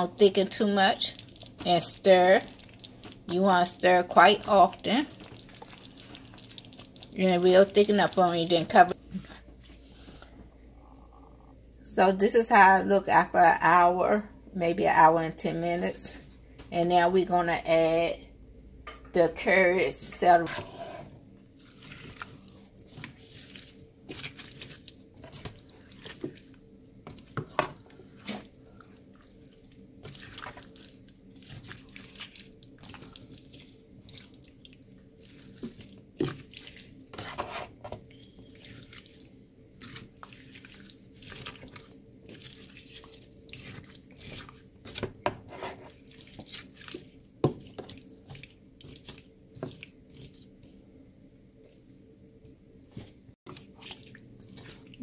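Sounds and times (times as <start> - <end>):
spatula stirring thick stew: 0.0 - 9.8, 20.2 - 50.6, 53.5 - 55.0
faint low hum: 0.0 - 37.1.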